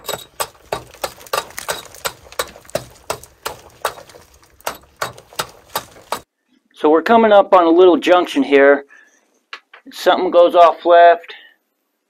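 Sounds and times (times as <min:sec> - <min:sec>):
rock hammer chipping rock: 0:00.0 - 0:06.3.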